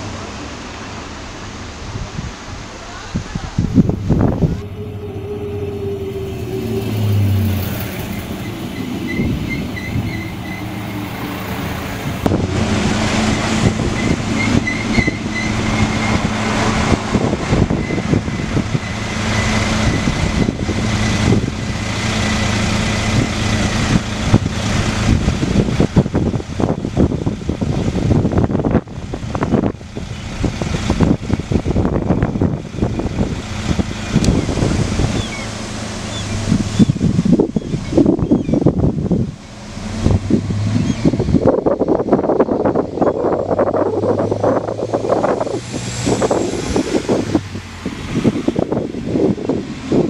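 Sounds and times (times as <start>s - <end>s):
diesel train engines running: 0.0s - 50.0s
steady high whine: 3.7s - 14.1s.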